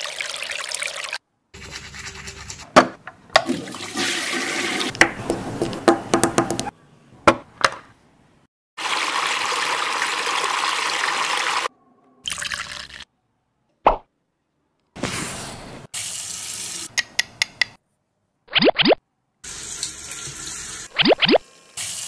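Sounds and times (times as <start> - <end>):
toy washing machine swishing water: 0.0 - 2.8.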